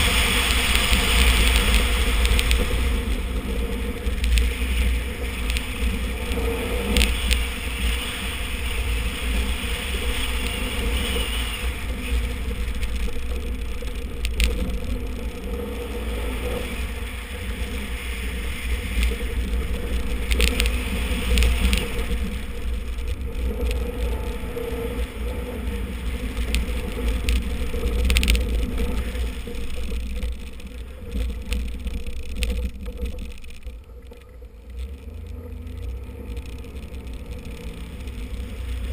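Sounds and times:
car engine revving: 0.0s - 38.9s
road and wind rumble: 0.0s - 38.9s
gravel knocks: 16.8s - 38.9s.

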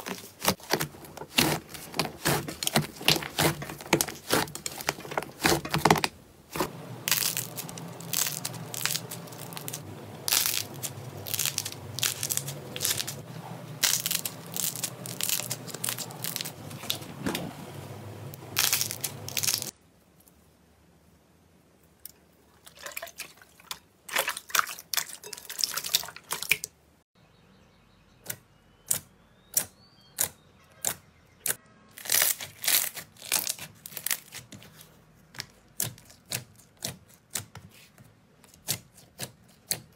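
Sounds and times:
slime crackling and popping: 0.0s - 13.2s, 13.8s - 17.0s, 18.5s - 19.7s, 32.0s - 34.4s.

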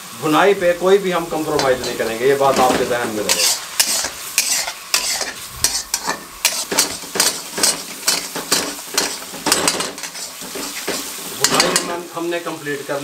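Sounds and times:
hot oil sizzling: 0.0s - 13.0s
metal spatula scraping a pan: 0.6s - 12.0s.

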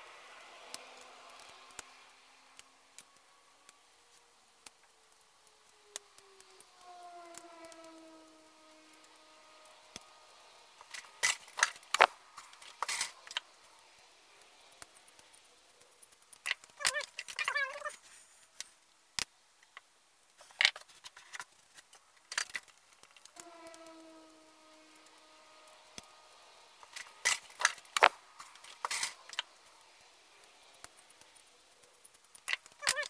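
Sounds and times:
wavering squeak: 5.6s - 13.4s, 16.7s - 18.0s, 23.2s - 28.0s, 32.5s - 33.0s
small tools clicking and clinking: 10.8s - 18.8s, 19.6s - 24.1s, 26.8s - 29.8s, 30.4s - 33.0s.

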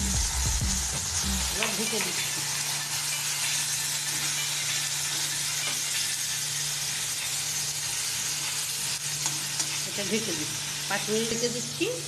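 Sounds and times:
steady low hum: 0.0s - 1.6s
vegetables sizzling in a pan: 0.0s - 12.0s.

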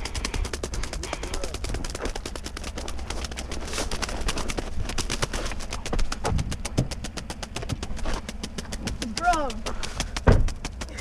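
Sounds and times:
bird wings beating on gravel: 0.0s - 11.0s
heavier thumps: 4.4s - 11.0s.

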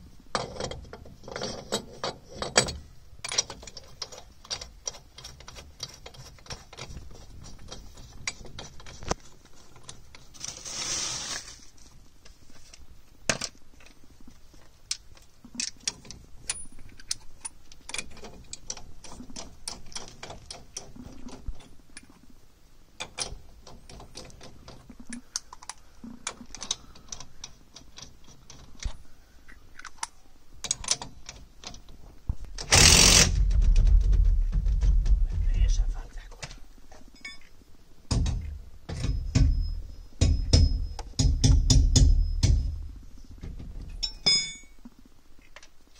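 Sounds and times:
socket wrench ratcheting: 32.6s - 33.3s.

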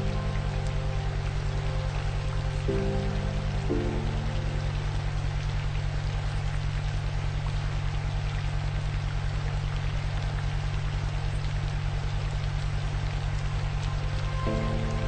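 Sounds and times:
steady low drone: 0.0s - 6.6s, 12.4s - 15.0s.

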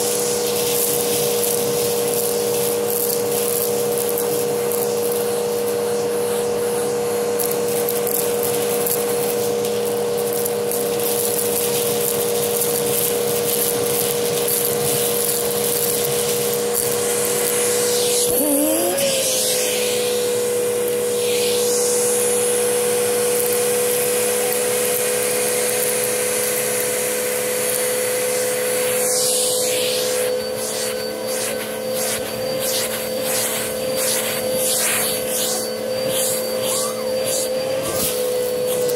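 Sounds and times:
noodles crackling up a hose: 0.0s - 6.2s, 7.3s - 22.4s
vacuum cleaner running: 0.0s - 38.9s.

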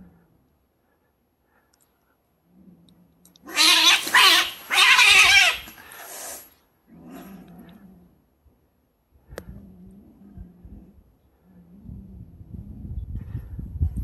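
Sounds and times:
cats caterwauling yowls: 3.5s - 5.8s.

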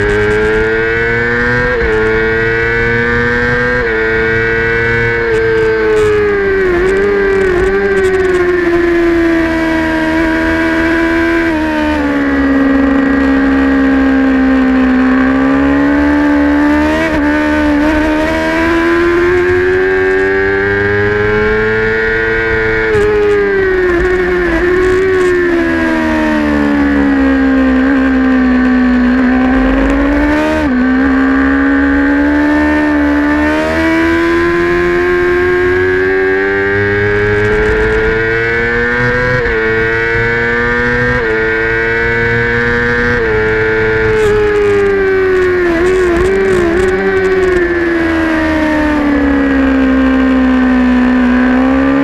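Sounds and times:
motorcycle engine at high revs: 0.0s - 52.0s
wind rumble on microphone: 0.0s - 52.0s.

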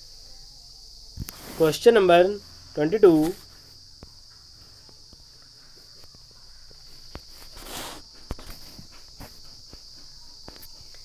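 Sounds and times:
crickets chirring: 0.0s - 11.0s
brief rustle: 6.9s - 9.4s.

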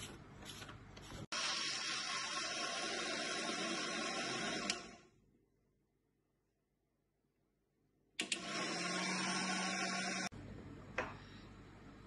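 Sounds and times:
mixer grinder whirring: 1.3s - 5.1s, 8.2s - 10.3s.

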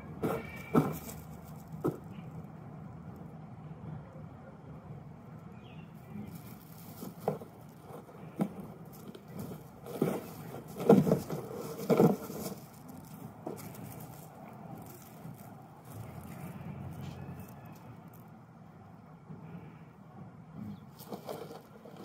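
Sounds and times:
cardboard rustling: 6.4s - 16.4s, 21.0s - 22.0s.

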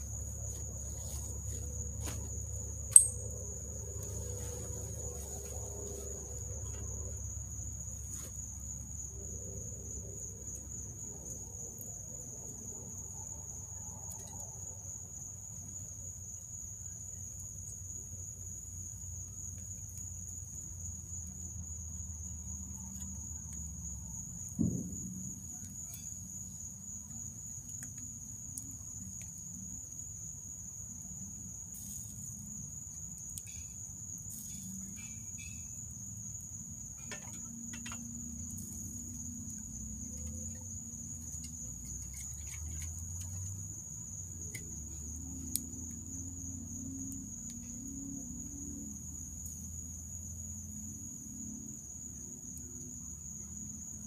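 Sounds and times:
crickets trilling: 0.0s - 54.0s
single knock: 24.6s - 25.1s.

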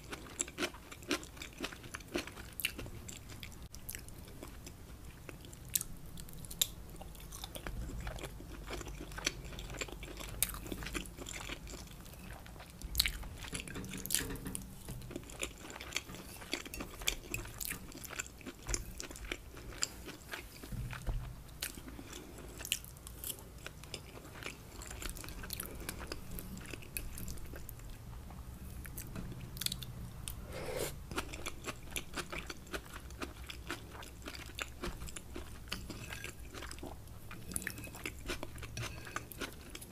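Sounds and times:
close chewing of rice: 0.0s - 14.3s, 14.9s - 28.0s, 30.5s - 39.9s.

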